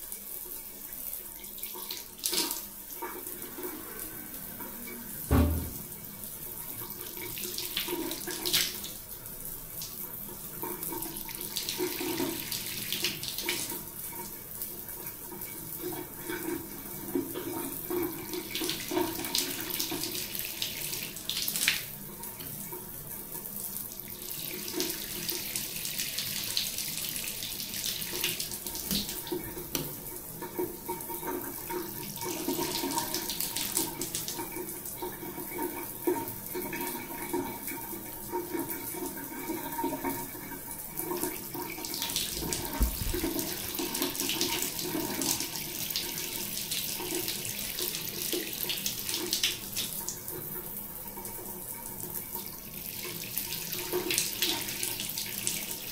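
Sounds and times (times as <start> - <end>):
shower water splashing: 0.0 - 22.8, 24.0 - 37.7, 41.0 - 50.6.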